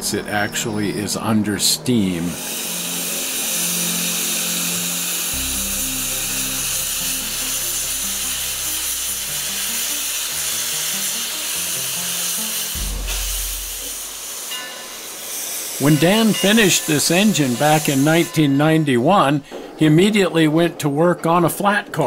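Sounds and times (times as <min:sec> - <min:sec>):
steam hissing from locomotive: 0:02.0 - 0:19.8
background music with bass notes: 0:03.7 - 0:14.7.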